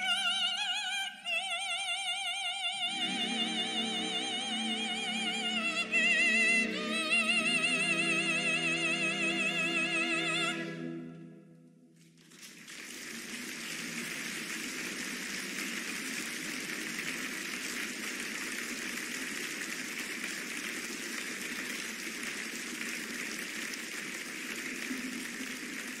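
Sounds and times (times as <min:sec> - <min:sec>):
large audience applauding: 0:02.9 - 0:09.0, 0:12.1 - 0:26.0.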